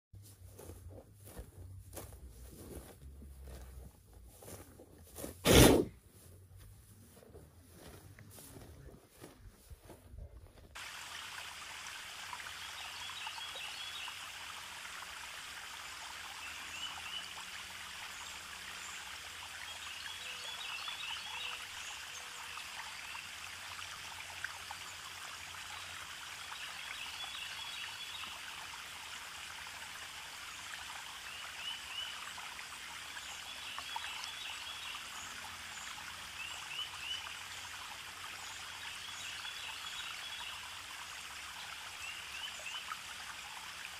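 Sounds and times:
running water: 10.6s - 43.9s.

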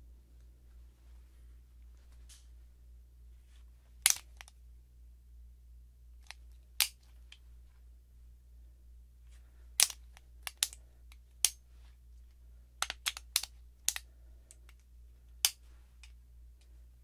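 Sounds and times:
pistol metallic clicks and clacks: 9.8s - 10.8s, 12.8s - 14.0s.

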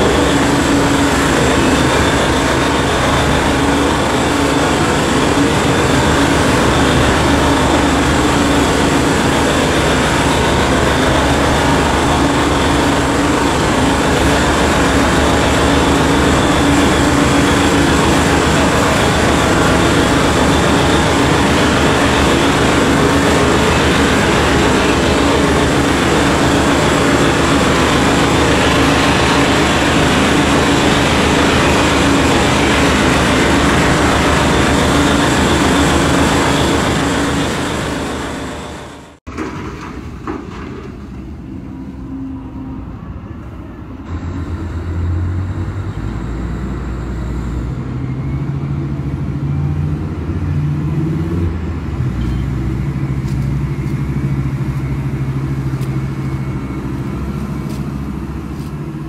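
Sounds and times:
mining shovel rumbling: 0.0s - 41.6s
low machine hum: 0.0s - 59.0s.

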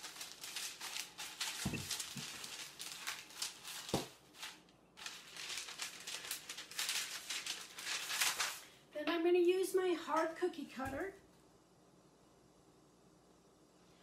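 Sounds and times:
baking paper crinkling: 0.0s - 10.9s.

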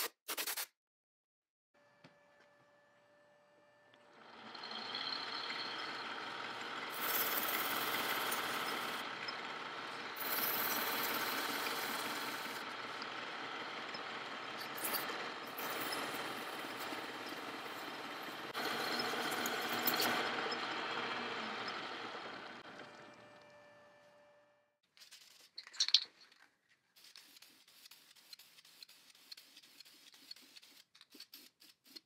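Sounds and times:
metal lathe running: 4.0s - 23.5s.

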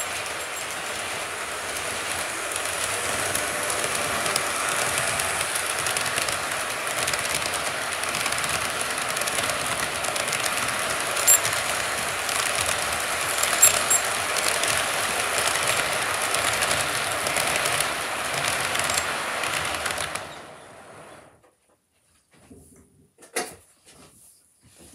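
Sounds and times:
model train wheels rattling on rail: 0.0s - 21.2s.

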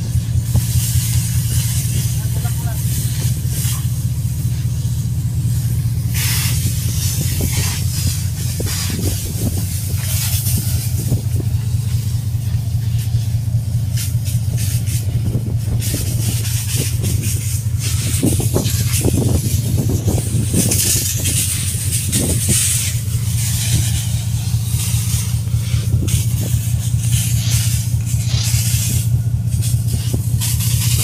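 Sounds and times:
fire-hose water jet hissing: 0.0s - 31.0s
ship machinery rumble: 0.0s - 31.0s.

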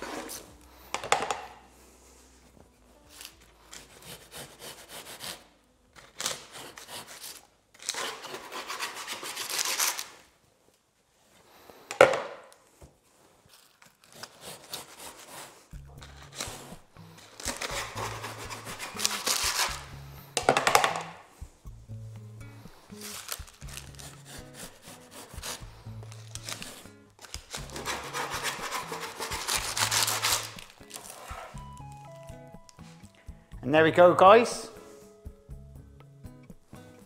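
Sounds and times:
knife sawing through pastry: 3.7s - 5.5s, 6.3s - 10.1s, 14.0s - 20.0s, 22.9s - 26.9s, 27.5s - 31.6s
background music with bass: 15.7s - 18.9s, 19.7s - 28.3s, 29.6s - 37.0s.

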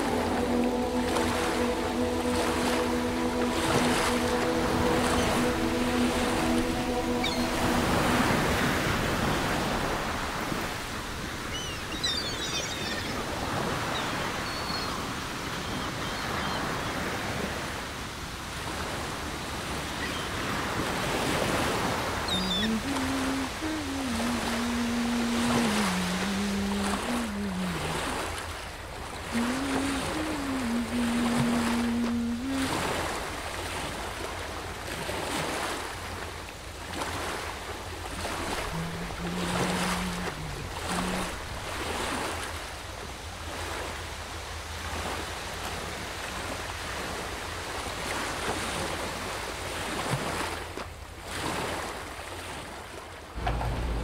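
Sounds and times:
slow melody of low notes: 0.0s - 10.7s, 29.2s - 33.3s, 38.4s - 41.8s, 53.4s - 54.0s
low steady hum: 0.0s - 11.1s, 53.4s - 54.0s
waves breaking on shore: 0.0s - 54.0s.

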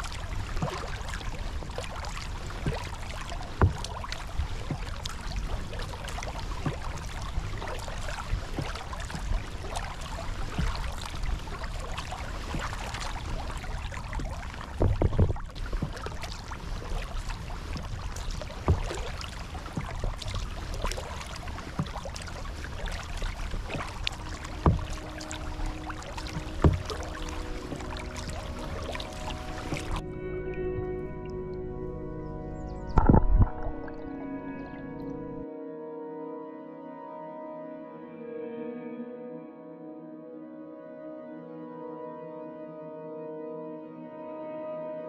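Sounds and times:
water rushing along kayak hull: 0.0s - 35.4s
low rumble: 22.7s - 35.4s.

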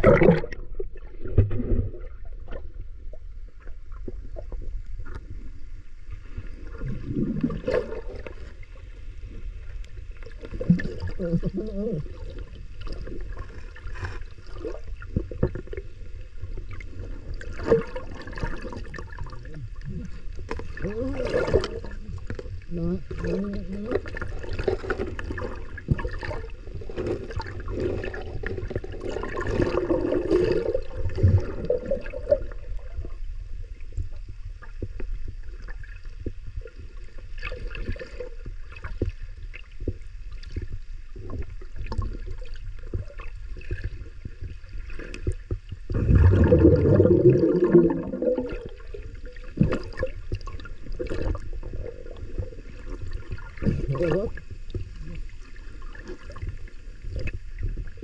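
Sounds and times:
muffled underwater water noise: 0.0s - 58.0s
swirling water surges: 45.9s - 57.1s.

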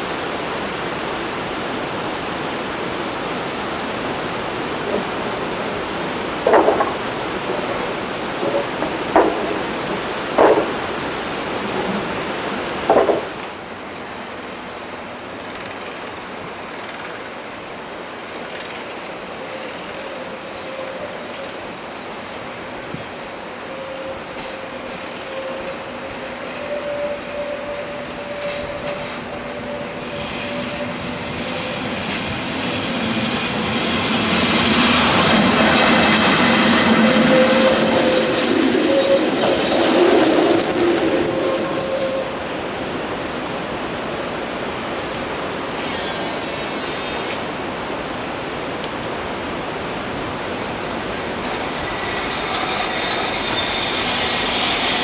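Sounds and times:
train rolling on rails: 0.0s - 55.0s
train wheels squealing: 19.4s - 42.5s, 45.8s - 48.6s, 51.6s - 55.0s.

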